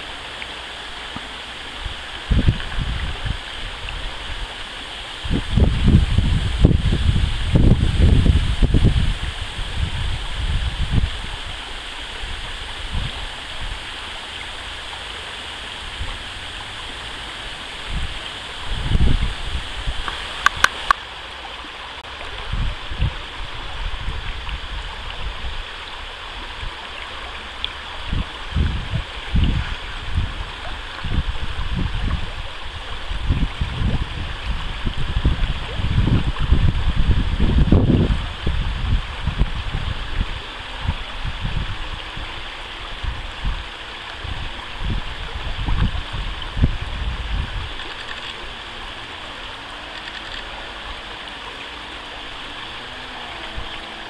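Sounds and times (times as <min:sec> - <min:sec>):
low rumbling gusts: 0:00.0 - 0:20.9, 0:27.5 - 0:54.0
shallow stream flowing: 0:00.0 - 0:54.0.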